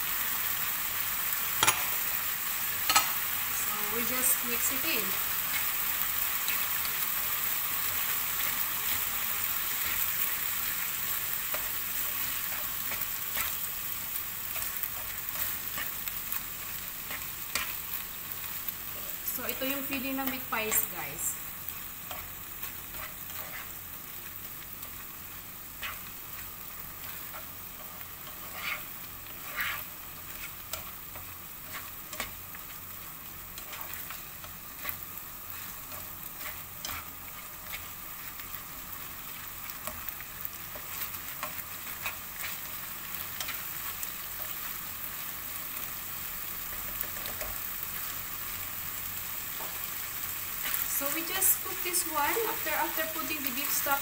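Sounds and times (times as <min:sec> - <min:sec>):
meat sizzling in a pan: 0:00.0 - 0:54.0
utensil scraping a pan: 0:22.0 - 0:23.8, 0:25.7 - 0:32.3, 0:33.6 - 0:37.9.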